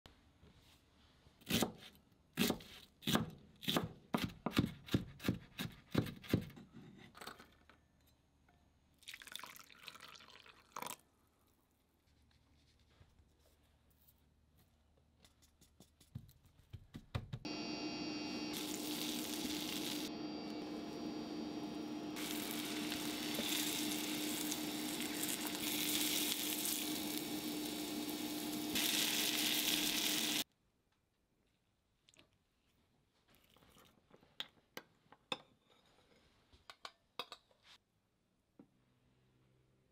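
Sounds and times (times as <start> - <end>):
low hum: 17.5 - 30.4
butter sizzling in frying pan: 17.8 - 30.4.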